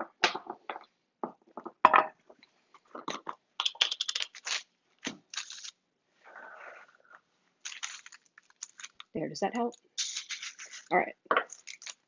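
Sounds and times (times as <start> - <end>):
paper page turning: 3.9 - 5.8, 7.6 - 9.1, 10.0 - 10.9, 11.5 - 12.0.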